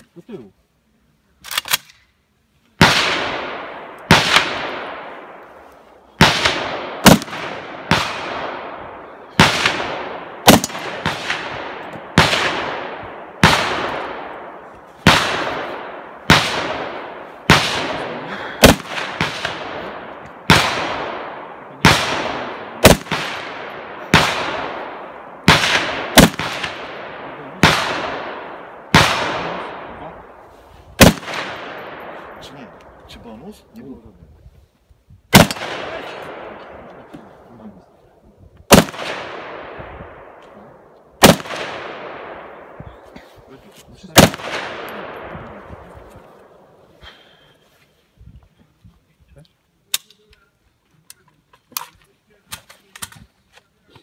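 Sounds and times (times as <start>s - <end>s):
gunshots with echo: 2.8s - 5.4s, 6.2s - 30.4s, 31.0s - 32.7s, 35.3s - 37.1s, 38.7s - 40.4s, 41.2s - 42.9s, 44.1s - 46.8s.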